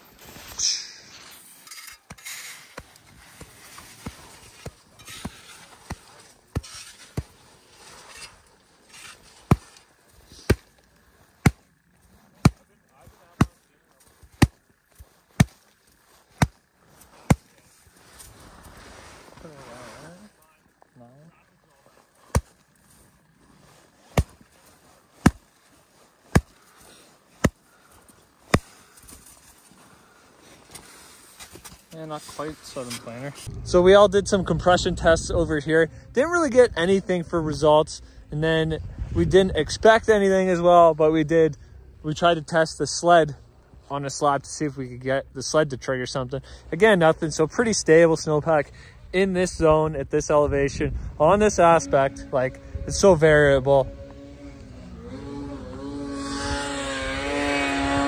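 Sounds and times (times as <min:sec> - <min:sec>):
hand tapping shovel blade on snow: 0:01.7 - 0:17.6, 0:24.0 - 0:27.7.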